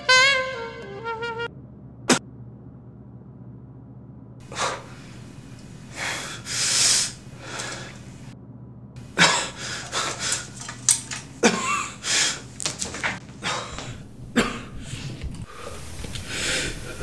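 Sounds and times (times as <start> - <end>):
breathy air puffs from saxophone: 4.5 - 8.3, 14.7 - 17.0.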